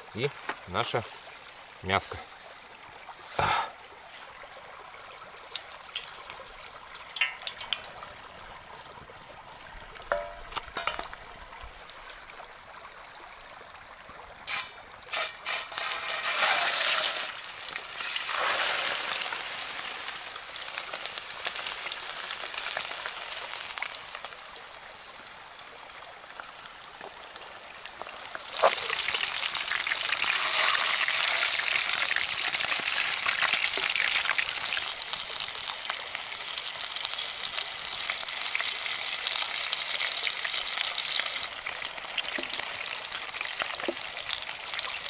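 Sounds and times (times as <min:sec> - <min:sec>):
meat sizzling in a pan: 0:05.1 - 0:08.9, 0:14.5 - 0:24.4, 0:27.8 - 0:45.0.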